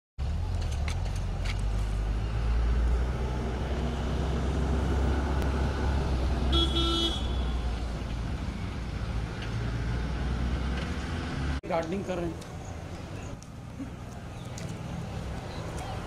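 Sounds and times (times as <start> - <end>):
horn toot: 6.5 - 7.7.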